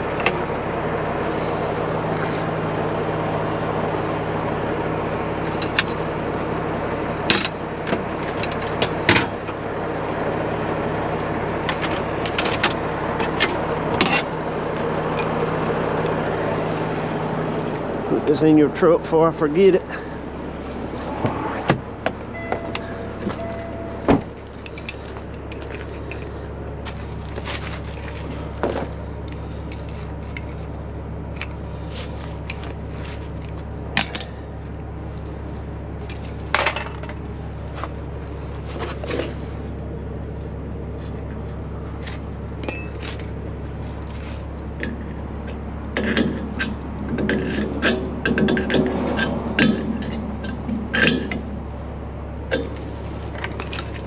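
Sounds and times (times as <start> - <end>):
truck engine idling: 0.0 - 54.0
metal tools clinking: 42.6 - 43.4, 53.4 - 54.0.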